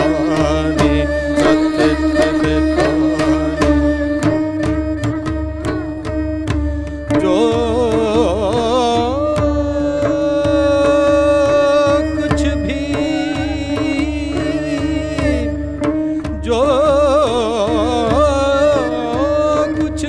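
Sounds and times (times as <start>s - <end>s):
man singing: 0.0s - 4.8s, 7.1s - 20.0s
erhu melody: 0.0s - 20.0s
mridangam strokes: 0.0s - 20.0s
steady drone note: 12.8s - 15.5s.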